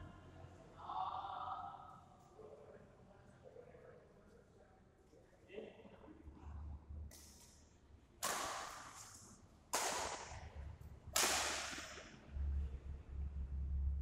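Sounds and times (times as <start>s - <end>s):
racket striking shuttlecock: 8.2s - 10.5s, 11.1s - 12.1s.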